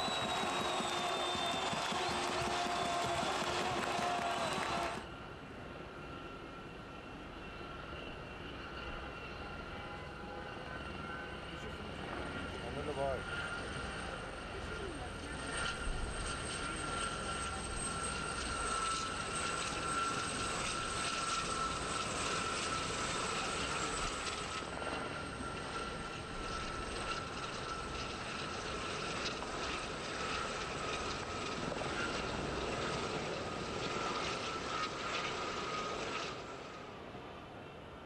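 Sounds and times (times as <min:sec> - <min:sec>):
helicopter rotor chop: 0:00.0 - 0:05.0
helicopter turbine whine: 0:00.0 - 0:38.0.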